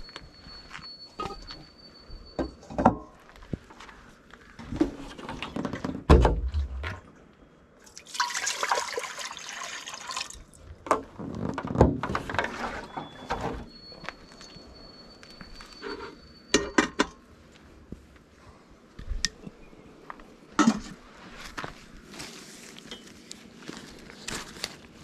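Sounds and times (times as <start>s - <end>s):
water pouring into metal pot: 7.9s - 10.5s.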